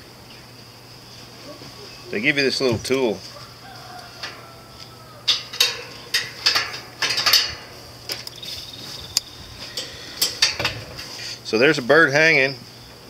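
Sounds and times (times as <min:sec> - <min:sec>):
metal hooks clinking: 0:05.2 - 0:08.8, 0:09.7 - 0:10.8.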